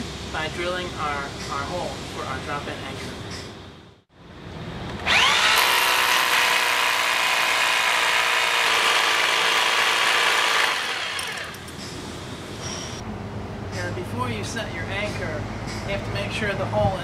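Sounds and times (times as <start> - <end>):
rotary hammer drilling concrete: 5.0 - 11.8.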